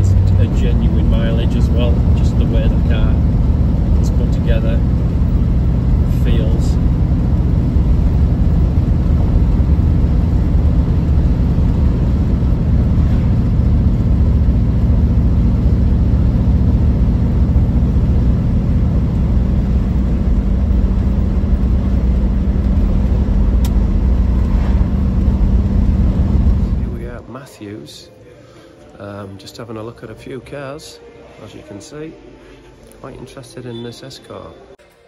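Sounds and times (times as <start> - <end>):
car engine running steadily: 0.0 - 27.2
tyre and road noise: 0.0 - 27.2.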